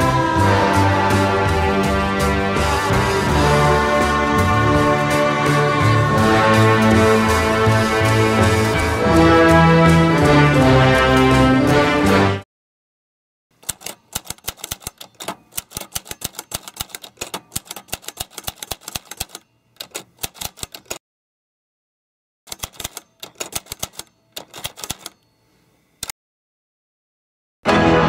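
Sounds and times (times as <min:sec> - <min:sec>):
typewriter keys clacking: 0:13.6 - 0:21.0, 0:22.5 - 0:25.2.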